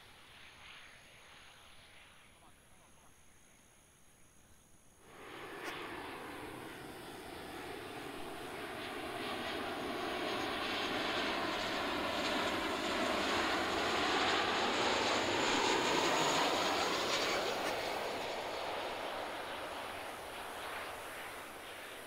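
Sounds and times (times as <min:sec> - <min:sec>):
jet aircraft rushing noise: 0:05.1 - 0:22.0.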